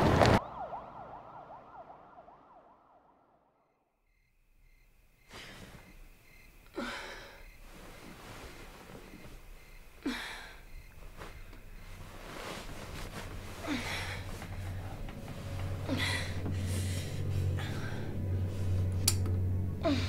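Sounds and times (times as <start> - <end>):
person gasping: 10.0 - 10.6, 13.6 - 15.0, 15.8 - 18.2
low hum: 11.1 - 20.0.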